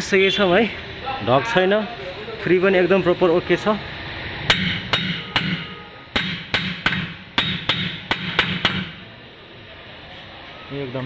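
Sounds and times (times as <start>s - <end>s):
hammer tapping on metal: 4.5s - 9.0s.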